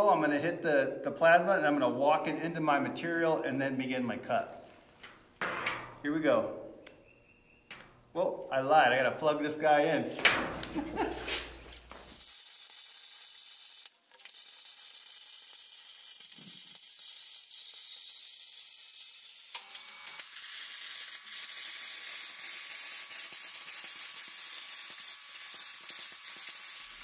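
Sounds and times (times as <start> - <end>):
plasma cutter hissing: 11.4 - 19.5, 20.3 - 27.0.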